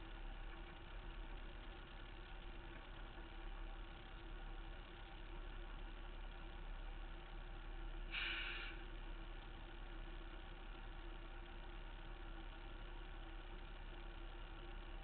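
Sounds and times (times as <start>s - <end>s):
truck engine idling: 0.0s - 15.0s
brief hiss: 8.1s - 8.8s.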